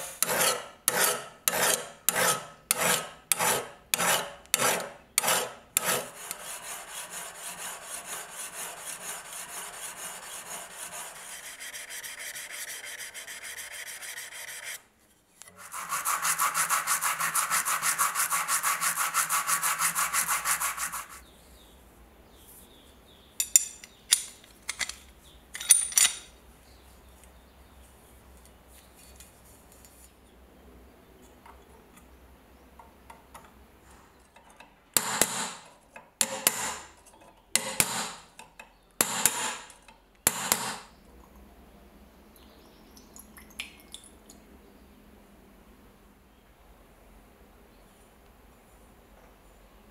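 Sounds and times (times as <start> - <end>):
file rasping on steel blade: 0.0 - 14.8, 15.5 - 21.2
blade rubbed on abrasive sheet: 5.3 - 14.8, 15.5 - 21.2.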